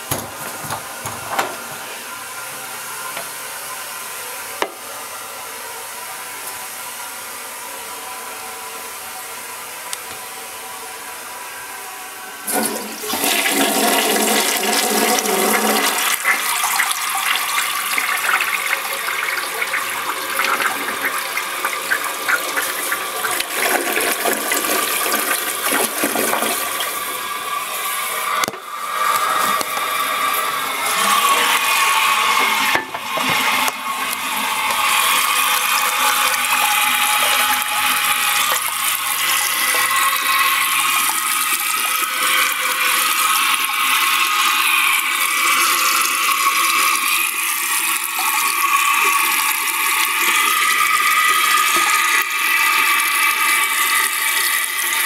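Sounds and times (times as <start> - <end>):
water hissing through toilet valve: 12.4 - 55.0.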